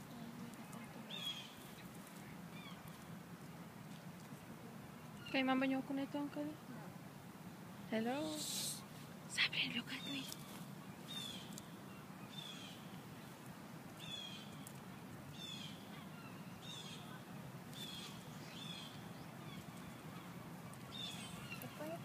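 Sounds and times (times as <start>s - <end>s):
faint outdoor hum: 0.0s - 22.0s
bird calling: 1.1s - 1.7s, 15.3s - 22.0s.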